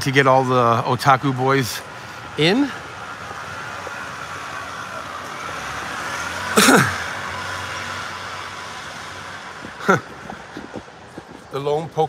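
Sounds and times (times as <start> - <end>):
urban street background noise: 0.0 - 12.0.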